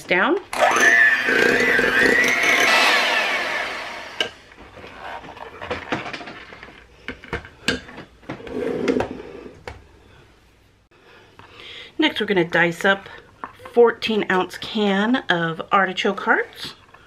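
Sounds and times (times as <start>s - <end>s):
electric hand mixer winding down: 0.5s - 4.5s.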